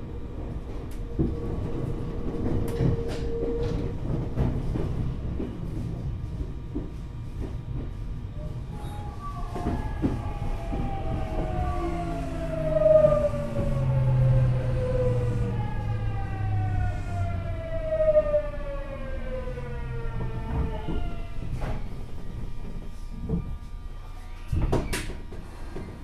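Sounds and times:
wheels rumbling on rail: 0:00.0 - 0:26.0
electric train motor whine: 0:08.9 - 0:24.4.

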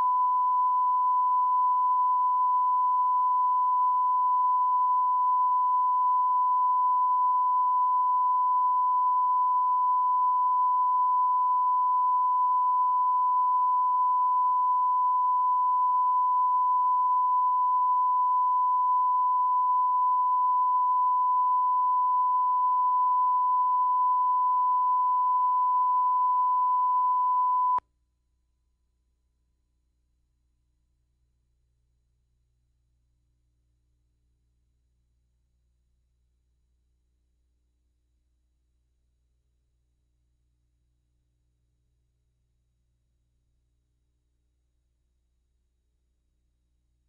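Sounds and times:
pure test tone: 0:00.0 - 0:27.8.

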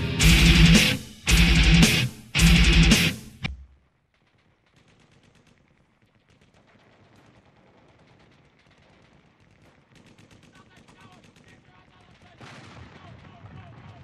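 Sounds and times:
loud music: 0:00.0 - 0:03.6
faint rapid clicking crackle: 0:03.7 - 0:14.0.

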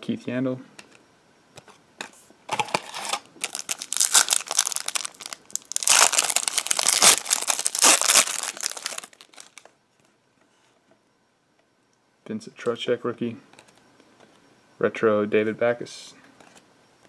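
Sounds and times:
foil wrapper crinkling and tearing: 0:02.5 - 0:09.7.

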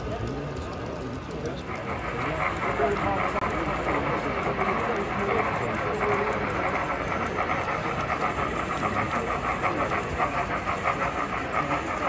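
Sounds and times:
model steam locomotive chuffing: 0:00.0 - 0:12.0.

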